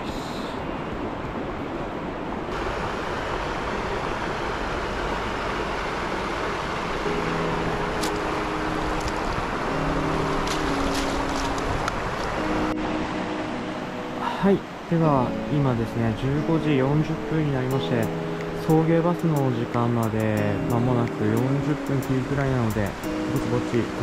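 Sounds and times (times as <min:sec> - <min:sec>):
river flowing over stones: 0:00.0 - 0:24.0
soft background music chords: 0:06.9 - 0:24.0.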